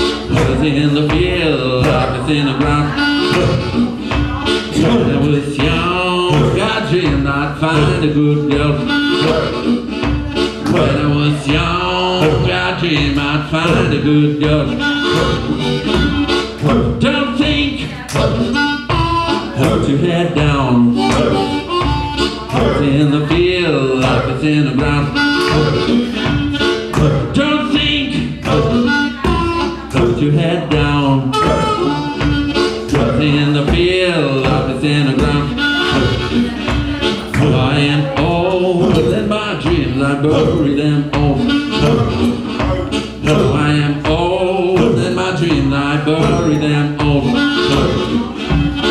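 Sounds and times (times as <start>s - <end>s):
harmonica solo: 0.0s - 0.4s, 2.1s - 6.0s, 8.0s - 12.8s, 13.9s - 19.6s, 20.7s - 23.5s, 24.2s - 30.0s, 31.0s - 37.8s, 41.2s - 43.3s, 46.2s - 48.9s
live band playing: 0.0s - 48.9s.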